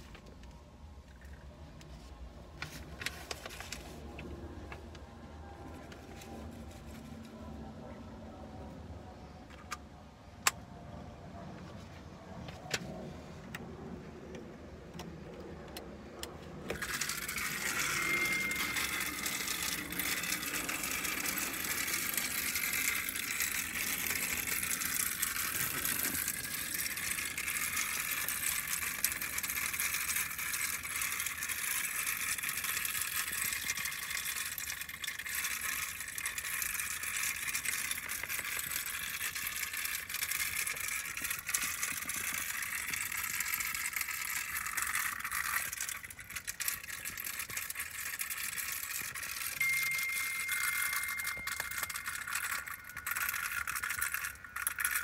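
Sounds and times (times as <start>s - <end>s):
grinder motor whining: 16.6s - 55.0s.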